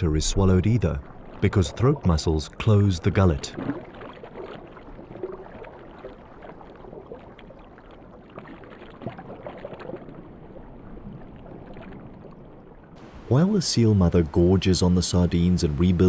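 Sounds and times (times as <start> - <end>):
bubbling gurgles: 0.0 - 12.5
underwater moving water: 0.0 - 16.0.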